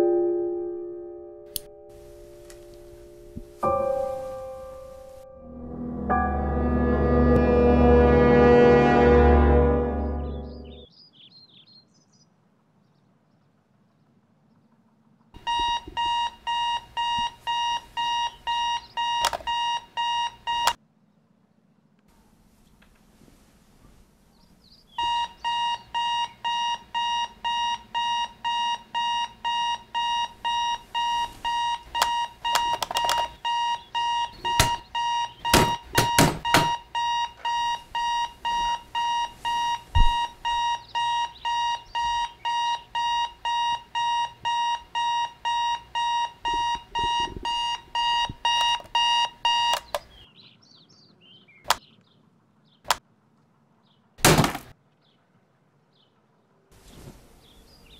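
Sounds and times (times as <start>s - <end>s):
alarm clock beeping: 15.4s - 20.8s, 25.0s - 49.9s
short clicks: 49.6s - 50.1s.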